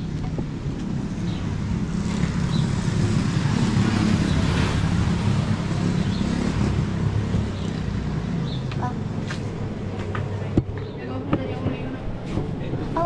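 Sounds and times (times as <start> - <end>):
vehicle passing by: 1.0 - 10.5.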